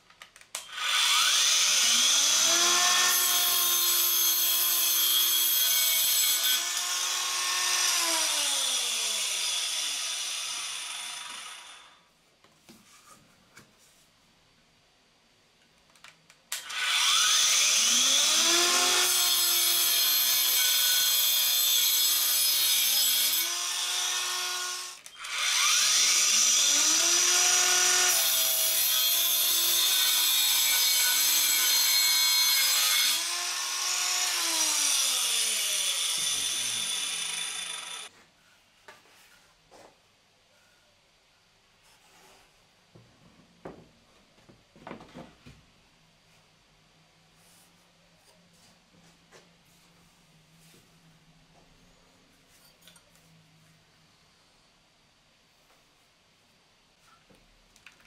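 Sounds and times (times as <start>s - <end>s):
saw blade cutting wood: 16.7s - 38.1s.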